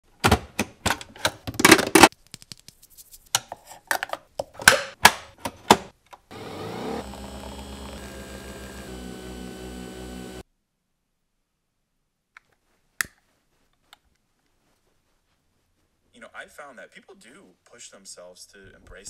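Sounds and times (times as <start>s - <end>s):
steady machine hum: 6.3s - 10.4s.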